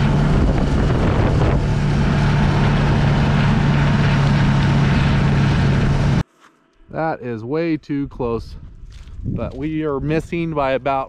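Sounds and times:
rushing wind: 0.0 - 6.2, 8.0 - 11.0
road noise: 0.0 - 6.9
vehicle engine humming: 0.0 - 7.0.

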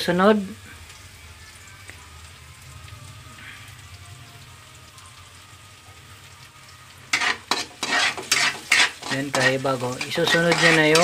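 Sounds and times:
onions sizzling in oil: 0.0 - 11.0
spatula scraping pan: 7.1 - 11.0.

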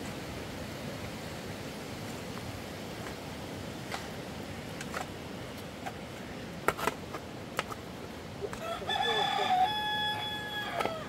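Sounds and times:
rooster crowing: 8.6 - 11.0.

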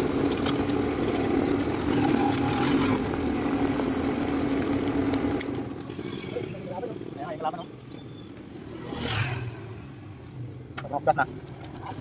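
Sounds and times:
motorcycle engine running: 0.0 - 10.2.

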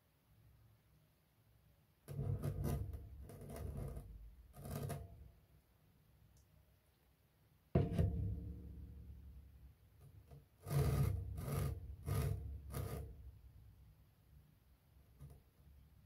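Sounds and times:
plastic pot rubbing scrapes: 2.1 - 5.2, 10.1 - 13.4
plastic plant pot thump: 7.8 - 8.7.

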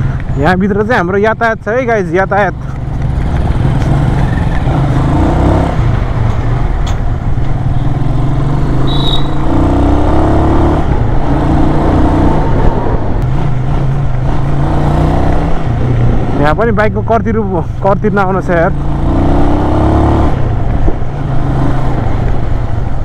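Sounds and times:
motorcycle engine running: 2.4 - 19.3.

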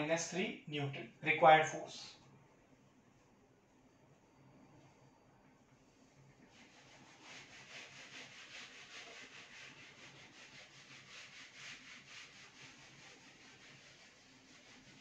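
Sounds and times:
duster rubbing on whiteboard: 6.4 - 15.0.

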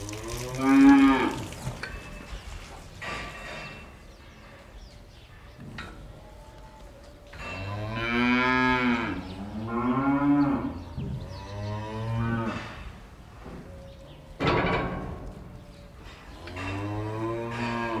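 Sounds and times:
cattle mooing: 7.6 - 12.9, 16.4 - 18.0.

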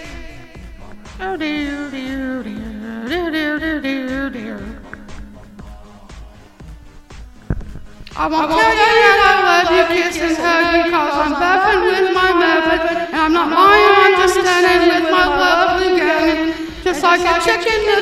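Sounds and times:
music: 0.0 - 18.0
person singing wordless notes: 0.0 - 18.0.

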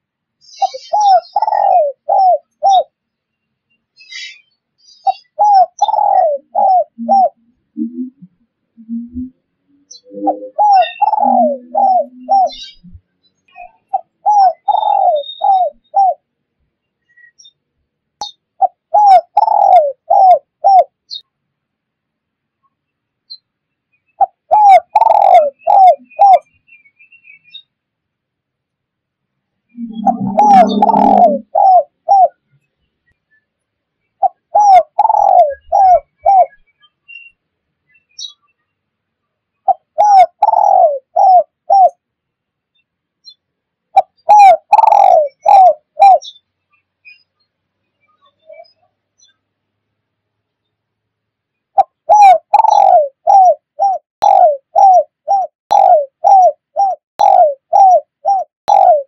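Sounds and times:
dove cooing: 0.6 - 2.9, 5.0 - 13.0, 13.6 - 16.2, 18.6 - 21.2, 24.2 - 26.5, 29.7 - 32.4, 34.2 - 36.6, 39.6 - 42.0, 43.9 - 46.3, 51.8 - 59.0.

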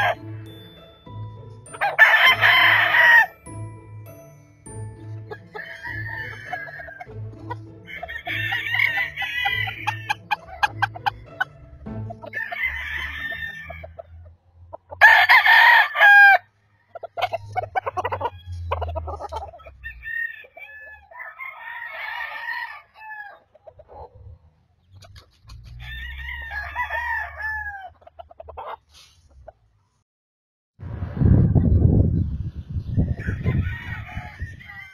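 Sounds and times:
roosters crowing: 0.0 - 0.5, 1.7 - 3.4, 5.2 - 11.5, 12.1 - 24.1, 25.5 - 28.8, 33.0 - 34.9
chicken clucks: 5.3 - 15.1, 16.7 - 26.2, 27.8 - 30.0.

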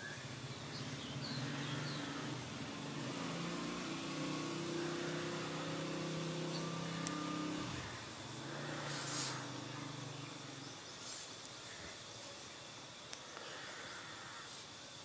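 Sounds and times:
vehicle engine running: 0.0 - 11.1.

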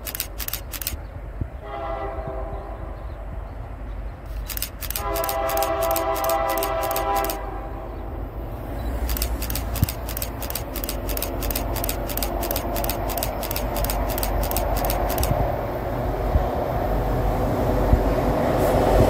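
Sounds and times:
rapid even ticking: 0.0 - 1.0, 4.3 - 7.4, 9.0 - 15.4
low rumble of locomotives: 0.0 - 19.0
locomotive horn chord: 1.6 - 2.8.

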